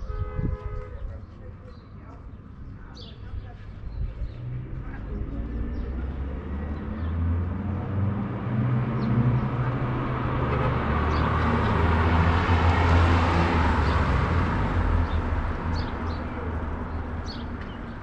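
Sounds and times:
motor vehicle passing: 0:04.3 - 0:18.0.

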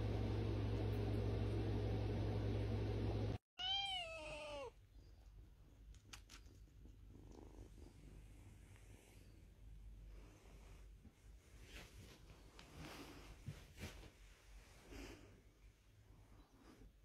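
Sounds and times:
hiss and hum: 0:00.0 - 0:03.4
kitten meowing: 0:03.6 - 0:04.7
kittens purring: 0:04.9 - 0:09.4.

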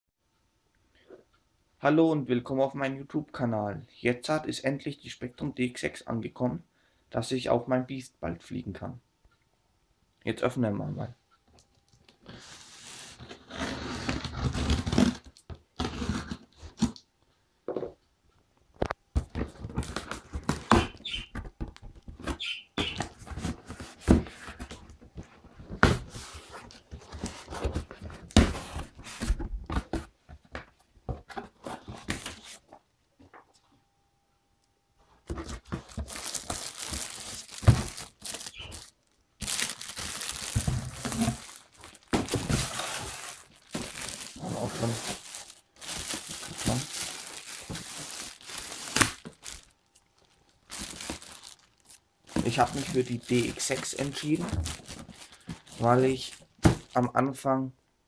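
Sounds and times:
packing tape tearing: 0:12.8 - 0:17.0, 0:35.8 - 0:57.0
contents rustling and crinkling: 0:18.8 - 0:32.8, 0:35.0 - 0:57.2.

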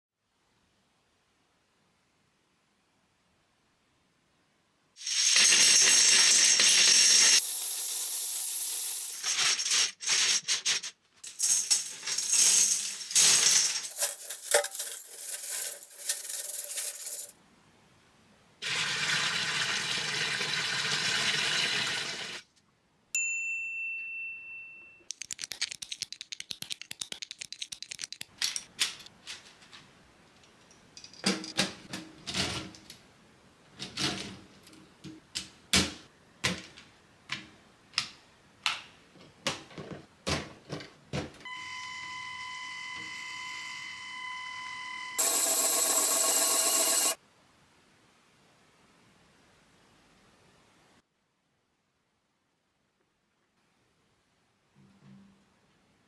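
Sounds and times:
plastic bricks clattering on glass: 0:09.1 - 0:17.4
short high ring: 0:23.2 - 0:25.1
plastic pieces clicking together: 0:25.1 - 0:29.8.

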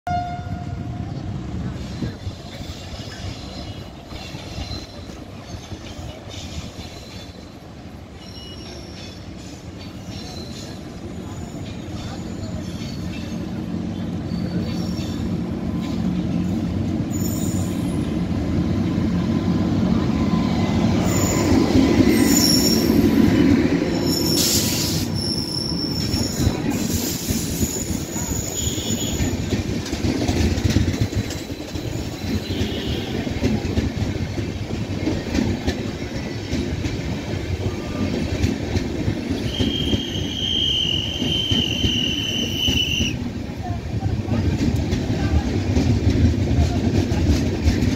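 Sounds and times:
train wheels rumbling on rails: 0:00.1 - 0:47.9
high wheel squeals: 0:08.2 - 0:13.6, 0:17.1 - 0:18.1, 0:21.0 - 0:23.2, 0:23.9 - 0:29.5, 0:39.4 - 0:43.2.

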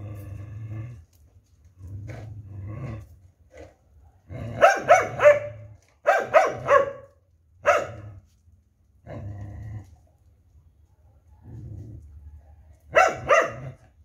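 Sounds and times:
dog growling: 0:00.0 - 0:01.2, 0:01.8 - 0:04.7, 0:09.0 - 0:10.0
dog barking: 0:04.6 - 0:08.0, 0:12.9 - 0:13.8.

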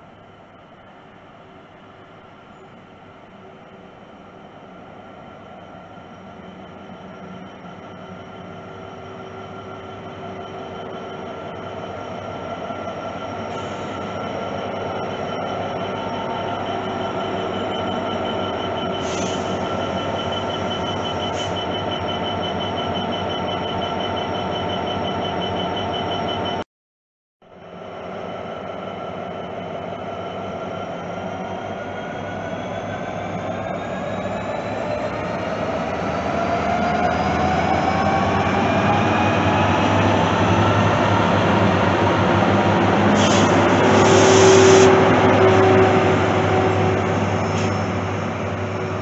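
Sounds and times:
diesel locomotive engine running: 0:00.0 - 0:26.6, 0:27.6 - 0:49.0
rail noise: 0:00.0 - 0:26.6, 0:27.5 - 0:49.0
high whine: 0:37.2 - 0:49.0.

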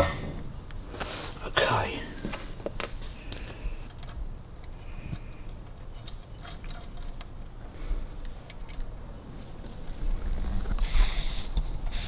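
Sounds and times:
metallic clinks of small parts: 0:05.9 - 0:07.3.

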